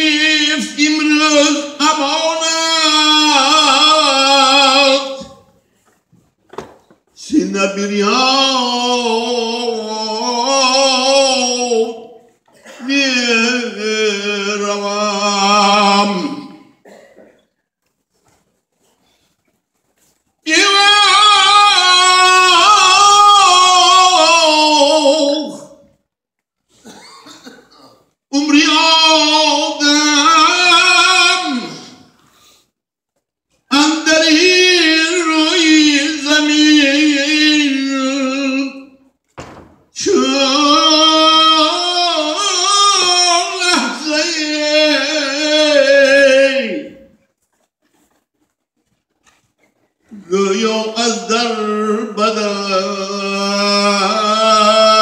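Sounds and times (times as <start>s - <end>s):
man chanting through loudspeakers: 0.0s - 5.5s, 7.2s - 16.8s, 20.4s - 25.9s, 28.3s - 32.2s, 33.7s - 39.1s, 40.0s - 47.2s, 50.1s - 55.0s
man singing unaccompanied: 0.0s - 5.5s, 7.2s - 16.8s, 20.4s - 25.9s, 28.3s - 32.1s, 33.7s - 39.1s, 39.9s - 47.2s, 50.2s - 55.0s
short breath: 32.2s - 32.8s.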